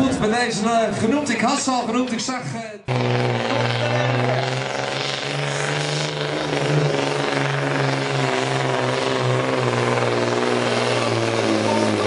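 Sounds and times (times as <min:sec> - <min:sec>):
truck diesel engine under load: 0:02.8 - 0:12.0.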